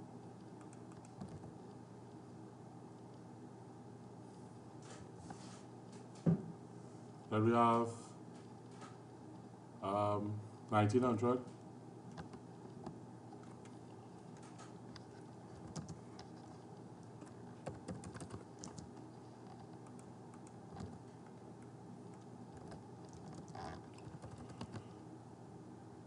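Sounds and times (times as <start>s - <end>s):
typing on computer keyboard: 0.6s - 1.5s, 15.5s - 16.3s, 17.6s - 21.0s, 22.5s - 24.8s.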